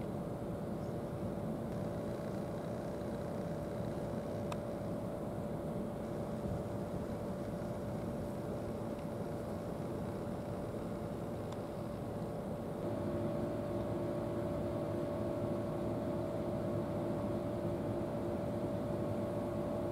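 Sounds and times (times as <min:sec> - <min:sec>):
machine drone with whine: 0:00.0 - 0:19.9
faint click: 0:04.5 - 0:04.7.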